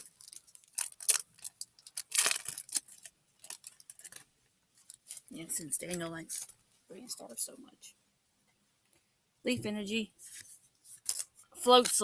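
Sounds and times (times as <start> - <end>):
foil wrapper crinkling and tearing: 0.0 - 5.3, 10.9 - 12.0.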